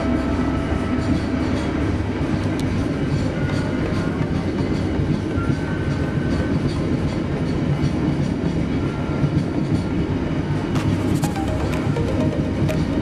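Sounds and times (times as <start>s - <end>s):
train wheels rumbling on rail: 0.0s - 11.2s.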